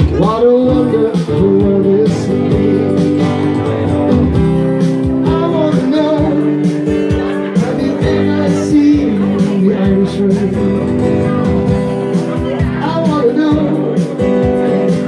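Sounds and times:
man singing: 0:00.0 - 0:15.0
strummed acoustic guitar: 0:00.0 - 0:15.0.

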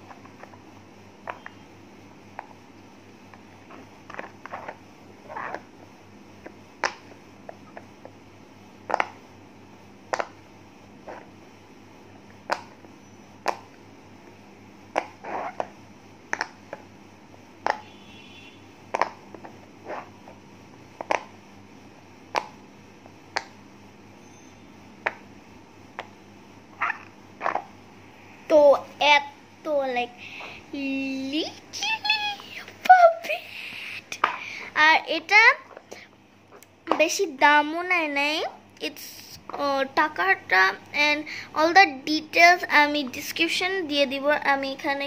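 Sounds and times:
fidget toy bubbles popping: 0:08.9 - 0:09.2, 0:18.9 - 0:19.2.

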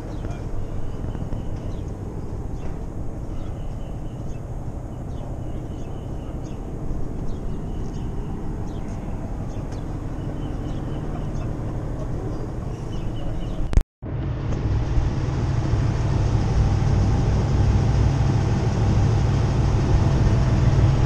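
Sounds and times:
birds chirping: 0:00.0 - 0:13.8
boat engine idling: 0:00.0 - 0:21.0.

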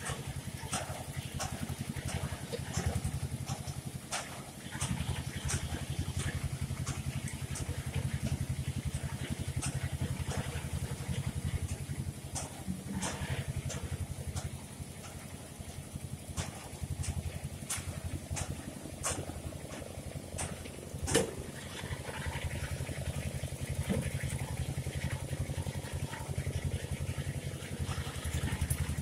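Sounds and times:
engine idling: 0:00.0 - 0:29.0.

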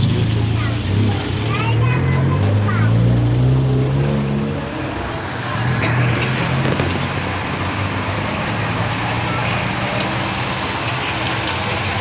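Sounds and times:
noisy background: 0:00.0 - 0:12.0.

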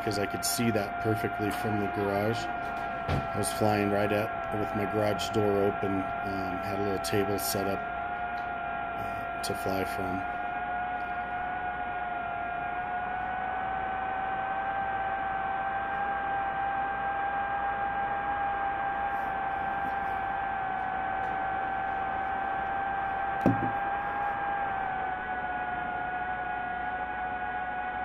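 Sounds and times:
drone motors whining: 0:00.0 - 0:28.0
short thump: 0:23.4 - 0:23.8.

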